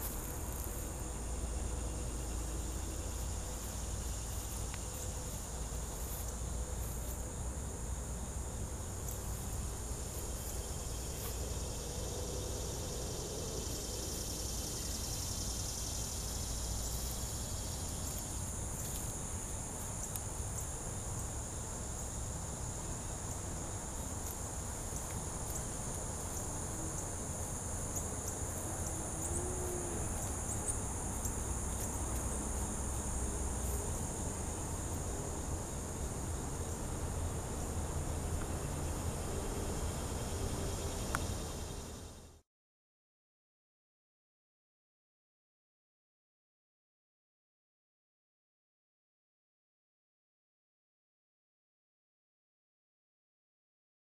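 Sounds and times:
insects shrilling: 0:23.0 - 0:36.9.

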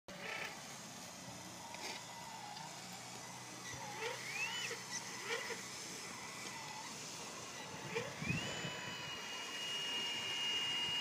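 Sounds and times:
model wheel loader humming: 0:00.1 - 0:11.0
short whistling glides: 0:04.0 - 0:05.6.

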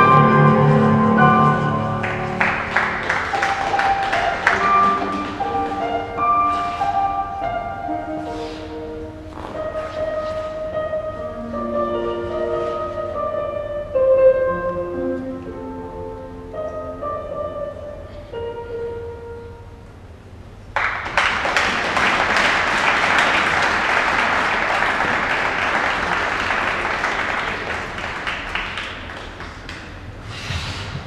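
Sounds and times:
slow instrumental music: 0:00.0 - 0:19.9
audience applause: 0:01.5 - 0:05.7, 0:20.8 - 0:30.1.

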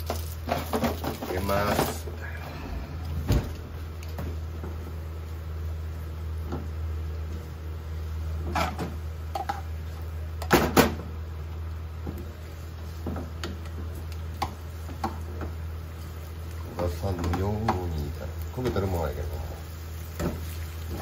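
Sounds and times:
steady low hum: 0:00.1 - 0:21.0
utensil scraping in frying pan: 0:13.9 - 0:21.0.

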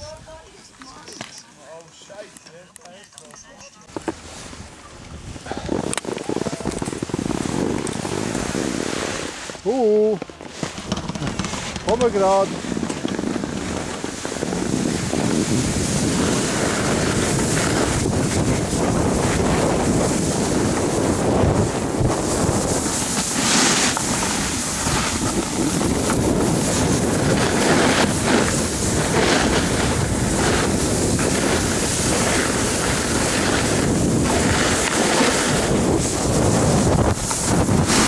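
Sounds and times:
skis scraping over snow: 0:03.9 - 0:38.0
wind buffeting microphone: 0:04.2 - 0:09.6, 0:10.7 - 0:38.0.

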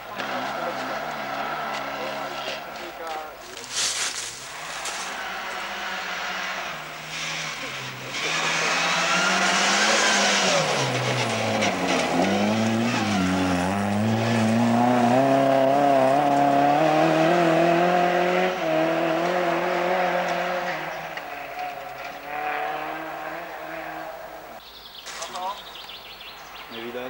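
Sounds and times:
rally car engine accelerating: 0:00.1 - 0:03.1, 0:04.5 - 0:24.6
tyres hissing on gravel: 0:03.6 - 0:05.0.

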